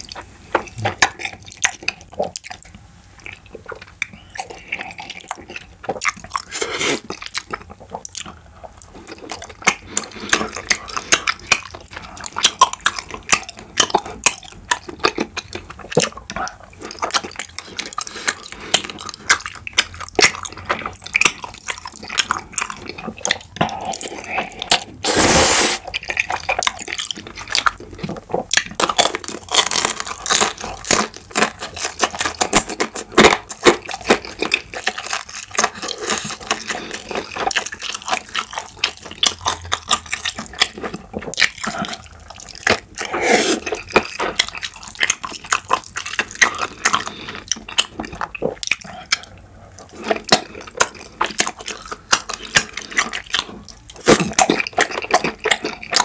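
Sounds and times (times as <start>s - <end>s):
wet chewing: 0.0s - 56.0s
noodle slurping: 23.8s - 25.9s, 43.0s - 44.0s.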